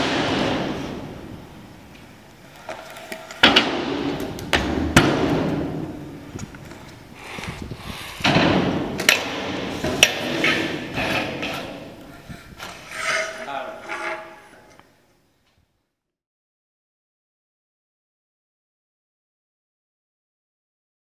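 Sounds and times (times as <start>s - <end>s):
scooter wheels rolling on concrete: 1.9s - 14.9s
scooter deck clacking on ground: 8.3s - 11.9s.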